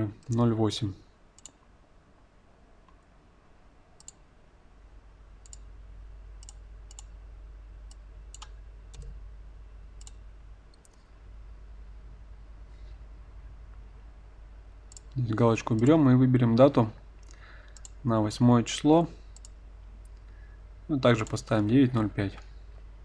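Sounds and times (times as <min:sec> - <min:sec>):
faint low hum: 0:00.0 - 0:23.0
computer mouse clicking: 0:01.4 - 0:01.6, 0:04.0 - 0:04.2, 0:05.4 - 0:05.7, 0:06.4 - 0:07.1, 0:07.9 - 0:09.1, 0:10.0 - 0:11.1, 0:14.9 - 0:16.0, 0:17.2 - 0:18.0, 0:19.3 - 0:20.3.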